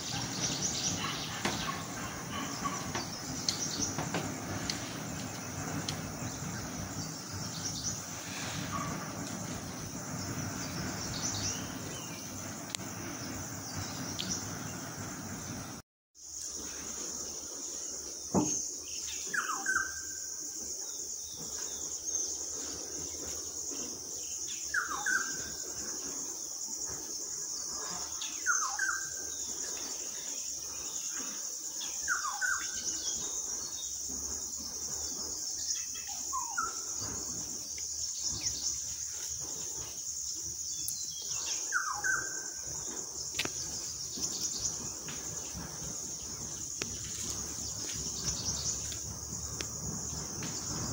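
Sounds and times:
high-pitched insect drone: 16.2 - 50.9.

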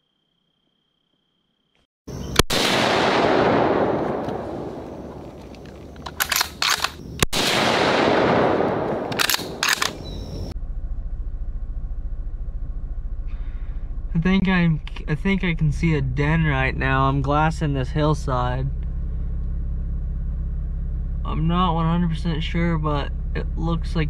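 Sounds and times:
sharp crackling: 2.1 - 21.4
loud blasts rolling away: 2.4 - 6.1, 7.1 - 13.8
low engine drone: 8.2 - 24.0.

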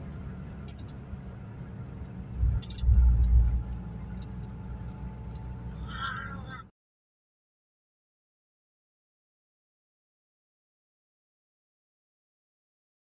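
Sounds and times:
car engine cruising: 0.0 - 6.6
low rumble: 2.1 - 6.6.

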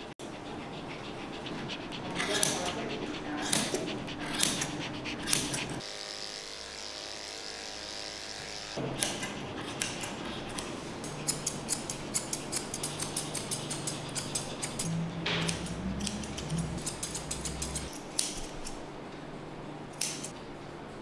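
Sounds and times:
scissors snipping hair: 2.2 - 5.8, 9.0 - 18.8, 19.9 - 20.4
electric clipper running: 5.8 - 8.8.

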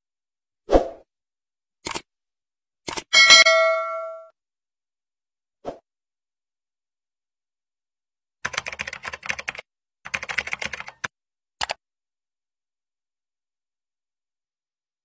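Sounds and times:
keyboard typing: 1.8 - 2.0, 8.4 - 11.8.

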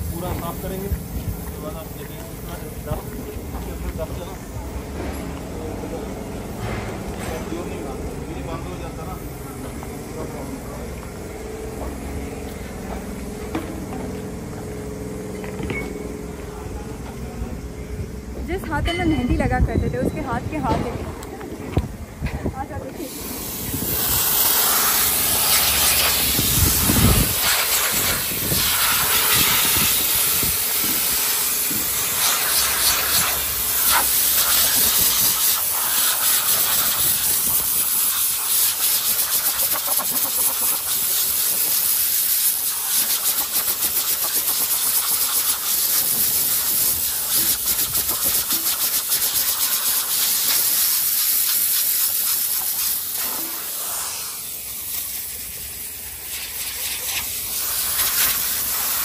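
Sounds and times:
compressed air blow gun hissing: 23.0 - 59.0.

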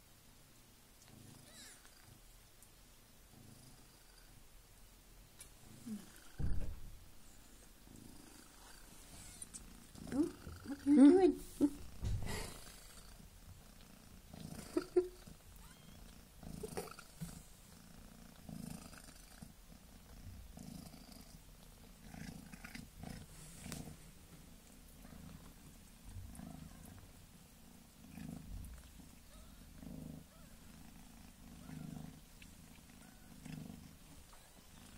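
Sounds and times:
cat purring softly: 1.0 - 2.4, 3.2 - 4.5, 5.4 - 34.9.

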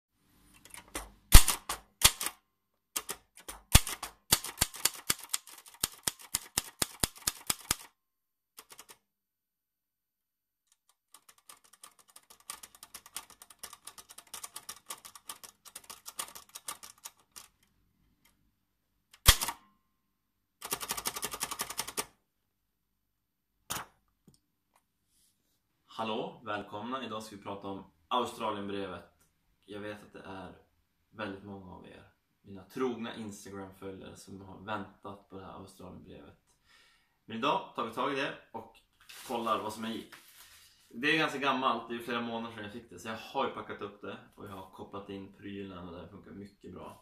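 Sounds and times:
typewriter rattle: 0.6 - 2.4, 3.0 - 7.9, 8.6 - 9.0, 11.1 - 17.7, 20.6 - 22.1
typewriter key clacks: 3.0 - 7.9.

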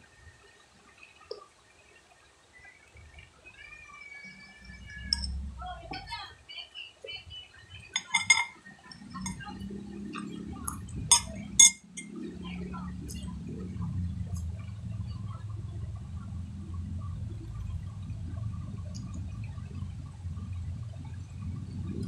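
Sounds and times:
low rumbling noise: 3.0 - 6.4, 7.6 - 22.0
utensil clinking against dish: 7.9 - 12.2.

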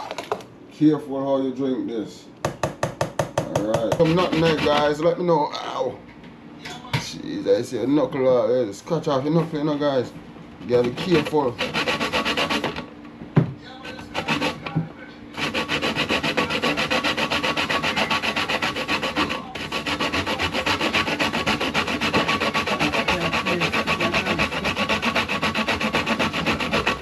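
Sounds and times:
nutmeg scraping on metal grater: 3.8 - 5.0, 10.7 - 12.8, 13.9 - 14.7, 15.4 - 27.0.

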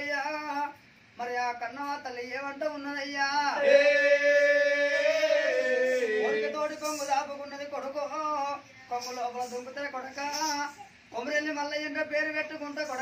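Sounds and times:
man singing chanted phrases: 3.5 - 7.1.

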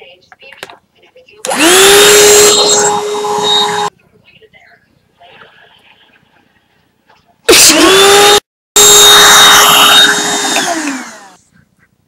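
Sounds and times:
vacuum cleaner motor whining: 1.5 - 3.9, 7.5 - 11.4.

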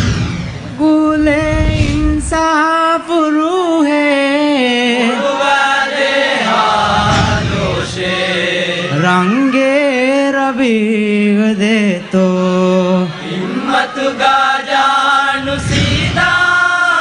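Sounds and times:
low rumble: 0.0 - 3.1
person singing slow melody: 0.7 - 5.2, 8.8 - 13.2.

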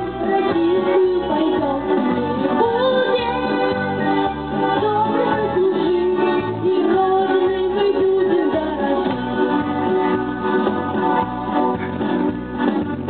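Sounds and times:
instrumental music with steady beat: 0.0 - 13.0
child singing into microphone: 0.1 - 9.2.

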